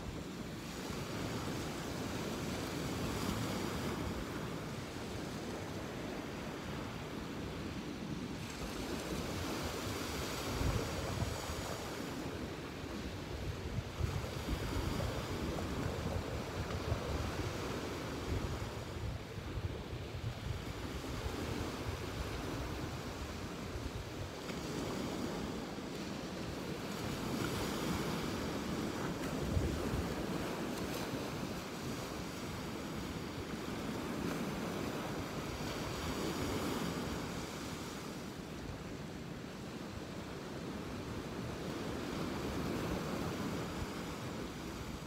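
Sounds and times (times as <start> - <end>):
ocean surf washing onto beach: 0.0 - 45.0
wind buffeting microphone: 8.4 - 38.0.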